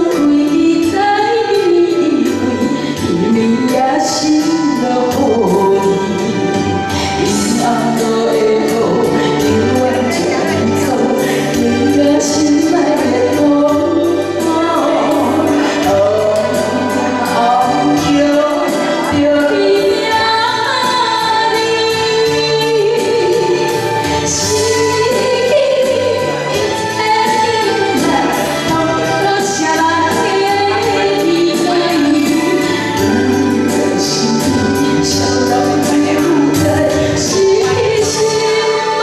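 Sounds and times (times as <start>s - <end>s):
instrumental backing with steady beat: 0.0s - 39.0s
woman singing a ballad: 0.0s - 39.0s.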